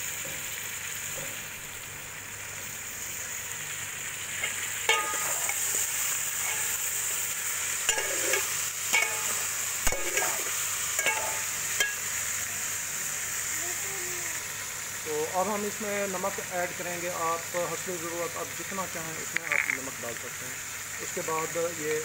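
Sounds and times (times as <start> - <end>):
chicken sizzling in oil: 0.0 - 22.0
ladle scraping and clinking pot: 4.4 - 7.0, 7.9 - 12.0.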